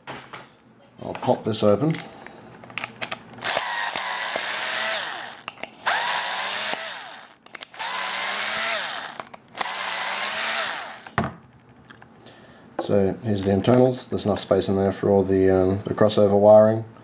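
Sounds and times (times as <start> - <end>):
cordless screwdriver whine: 3.4 - 11.2.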